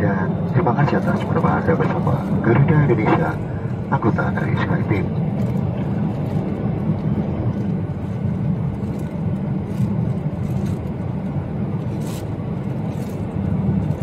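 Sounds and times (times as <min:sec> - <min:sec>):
airplane cabin rumble: 0:00.0 - 0:14.0.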